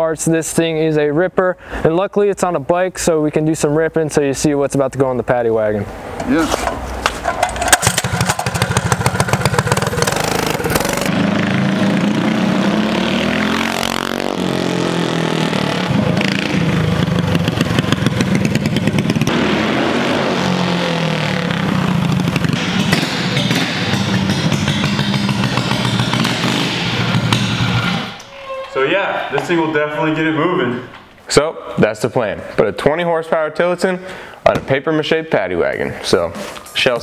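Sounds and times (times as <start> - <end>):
minibike engine running hard: 7.6 - 11.8, 21.9 - 26.6.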